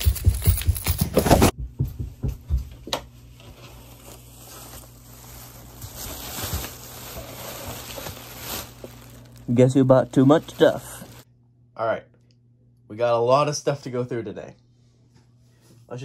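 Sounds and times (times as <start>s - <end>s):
plastic bags rustling: 3.3s - 11.3s.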